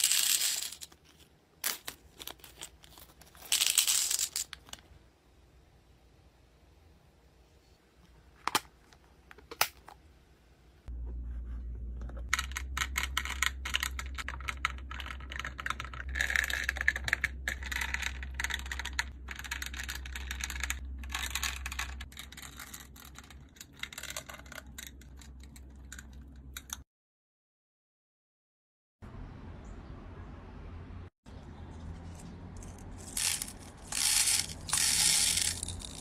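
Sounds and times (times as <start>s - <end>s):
plastic beads clicking and rattling: 0.0s - 1.0s, 1.6s - 4.8s, 12.3s - 26.2s, 32.9s - 36.0s.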